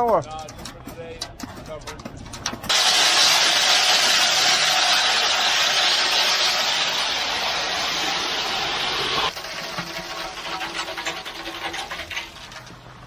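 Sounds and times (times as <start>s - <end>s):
wet concrete rushing down chute: 2.6s - 13.0s.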